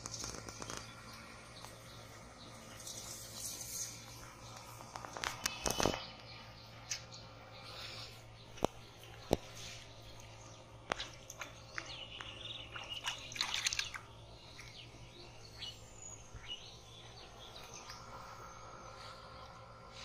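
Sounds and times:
birds chirping: 0:00.0 - 0:20.0
hands splashing in muddy water: 0:12.7 - 0:14.1.

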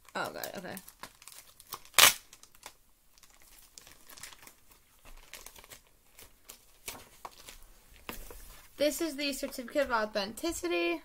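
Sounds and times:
paper tearing: 0:01.8 - 0:02.3
paper and cardboard rustling: 0:03.2 - 0:10.1.

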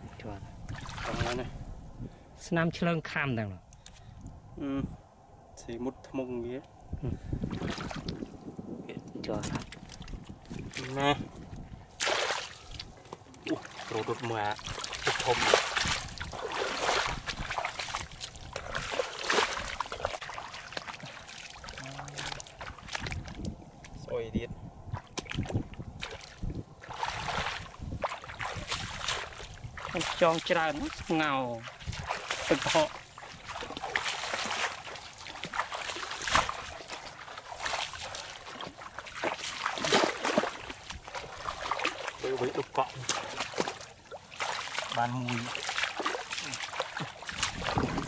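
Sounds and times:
footsteps splashing in water and mud: 0:00.6 - 0:01.4, 0:07.4 - 0:24.1, 0:24.8 - 0:48.0.

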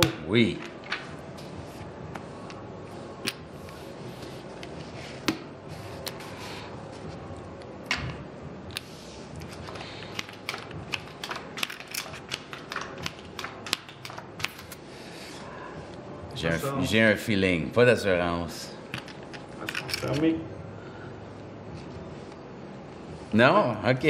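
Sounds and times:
room noise: 0:00.0 - 0:24.0
playing cards snapping and sliding: 0:08.7 - 0:14.8
casino chips clicking: 0:09.7 - 0:14.8.

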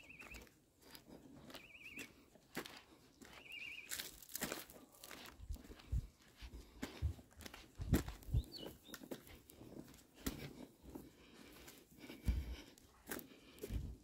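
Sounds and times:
bird chirp: 0:00.0 - 0:00.6, 0:01.4 - 0:02.3, 0:03.0 - 0:04.2, 0:08.2 - 0:09.2
footsteps on pavement: 0:00.0 - 0:14.0.

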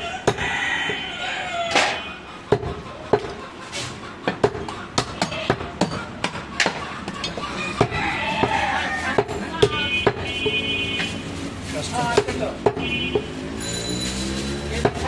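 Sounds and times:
knife chopping meat on wood: 0:04.3 - 0:06.8, 0:07.8 - 0:10.4, 0:12.2 - 0:13.3.

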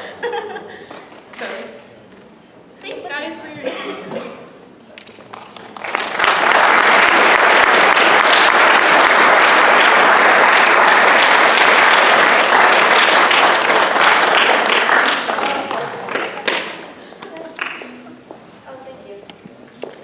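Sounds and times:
audience applauding: 0:05.0 - 0:16.9.

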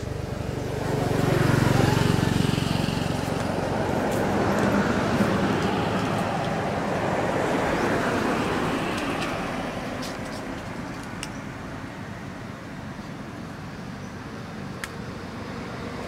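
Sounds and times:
vehicle passing by: 0:00.0 - 0:10.5.

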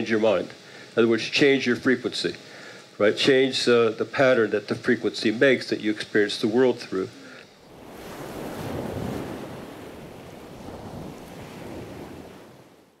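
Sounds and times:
ocean surf on beach: 0:07.6 - 0:13.0.

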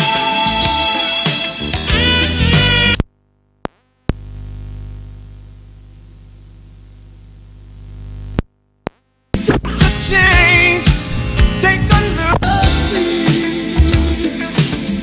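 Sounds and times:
steady tape hiss: 0:02.0 - 0:15.0
music from cassette player: 0:09.4 - 0:15.0.

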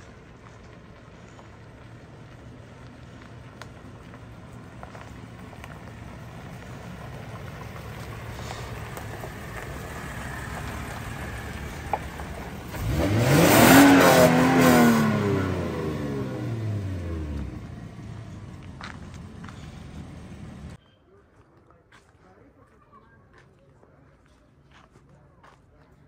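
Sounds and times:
engine rumbling and revving: 0:00.0 - 0:20.8.

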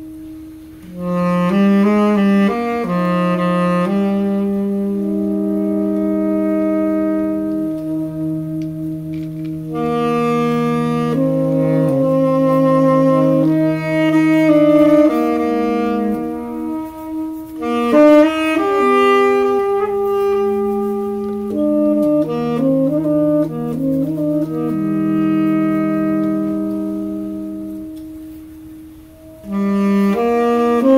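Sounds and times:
saxophone trio playing: 0:00.0 - 0:30.9.

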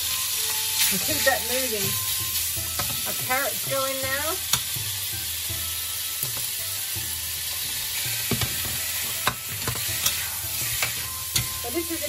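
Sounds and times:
food sizzling in hot oil: 0:00.0 - 0:12.0
metal turner scraping wok: 0:06.1 - 0:12.0.

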